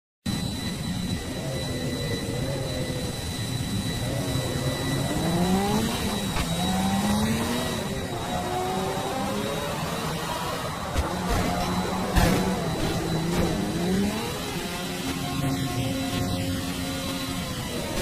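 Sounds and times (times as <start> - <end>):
thin high whine: 0.3 - 18.0.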